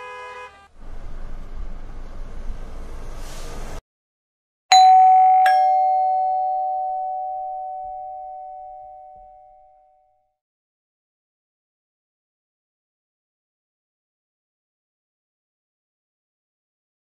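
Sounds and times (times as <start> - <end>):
two-tone chime doorbell: 4.7 - 10.2.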